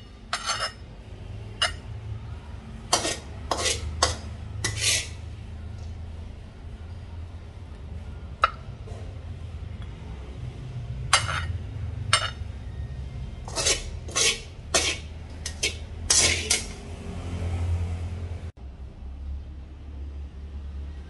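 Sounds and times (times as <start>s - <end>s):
metal utensil clinking on plate: 0.3s - 0.8s, 11.1s - 12.4s, 13.5s - 16.8s.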